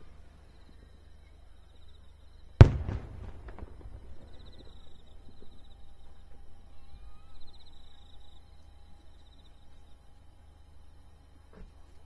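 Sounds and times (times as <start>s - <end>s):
firework burst echoing: 2.6s - 5.1s
faint firework crackles: 2.6s - 5.9s.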